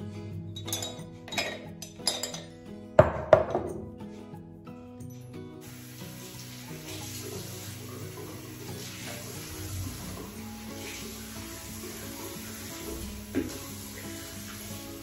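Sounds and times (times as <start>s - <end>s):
background music: 0.0s - 15.0s
toothbrush cup clinking on tiles: 0.6s - 3.9s
tap running: 12.6s - 14.6s.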